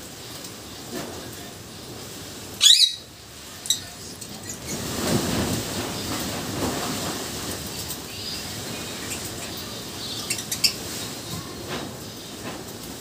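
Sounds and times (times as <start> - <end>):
lovebird chirp: 2.6 - 3.0, 8.2 - 10.8
lovebird squawking: 2.6 - 3.1
low rustling noise: 3.5 - 13.0.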